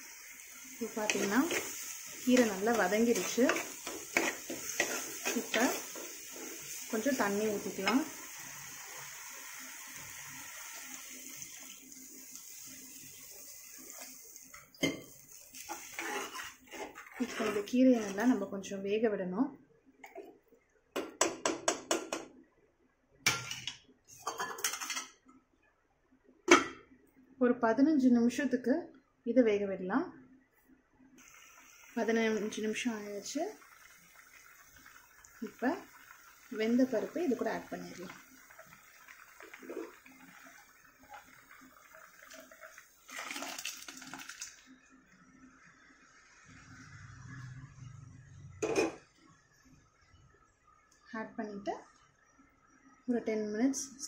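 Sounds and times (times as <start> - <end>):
water boiling in a pot: 0.0 - 18.7, 31.2 - 53.8
food poured into pot splash: 33.1 - 44.7.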